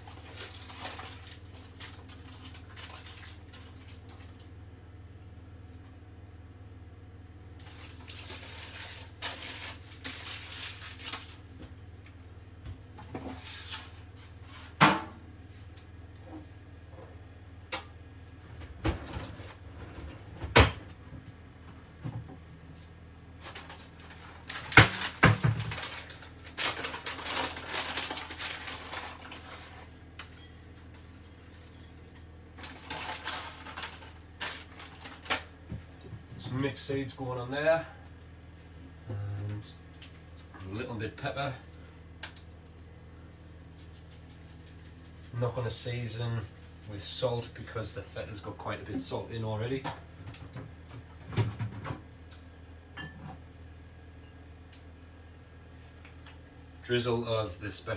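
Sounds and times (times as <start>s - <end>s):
aluminium foil crinkling: 0.0s - 4.5s, 7.6s - 12.4s, 23.4s - 35.6s, 43.2s - 48.4s
low steady hum: 0.0s - 57.9s
dishes clinking on worktop: 52.9s - 53.4s.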